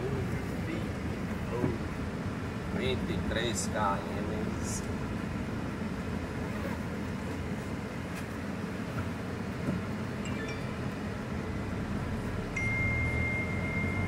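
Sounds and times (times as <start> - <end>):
car engine and tyre rumble: 0.0 - 14.0
faint short high beeps: 10.3 - 11.0, 12.6 - 14.0.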